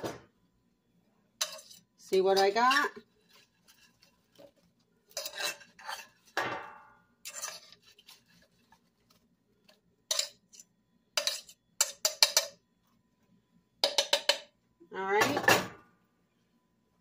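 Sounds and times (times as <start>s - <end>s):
vegetables clattering in metal pot: 1.4s - 8.7s, 10.0s - 12.6s.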